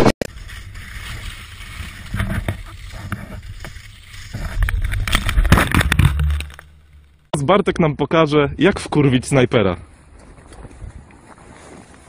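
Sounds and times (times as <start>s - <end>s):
camera tumbling knocks and scrapes: 0.2s - 7.3s
skis sliding over snow: 0.3s - 5.6s.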